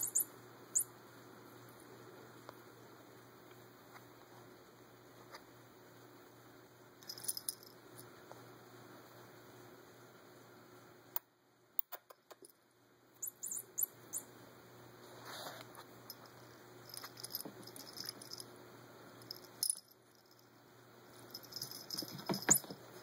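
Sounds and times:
collar bell jingling: 0:00.0 - 0:00.9, 0:07.0 - 0:07.7, 0:16.1 - 0:18.5, 0:19.2 - 0:20.5, 0:21.2 - 0:22.8.

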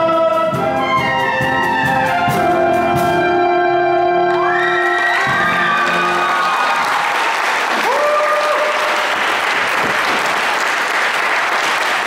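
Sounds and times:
music: 0:00.0 - 0:06.9
person whooping: 0:04.3 - 0:09.1
audience applauding: 0:04.3 - 0:12.0.

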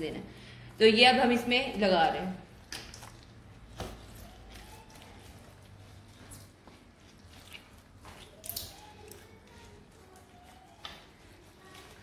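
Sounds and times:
hands squishing paste into meat: 0:02.6 - 0:12.0.

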